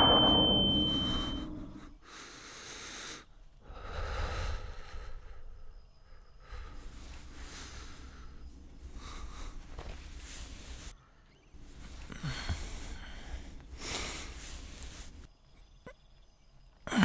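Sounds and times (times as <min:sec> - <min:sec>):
loud rushing roar: 0:00.0 - 0:01.8
high ringing tone: 0:00.0 - 0:01.9
man breathing heavily: 0:02.0 - 0:10.8, 0:11.9 - 0:15.2.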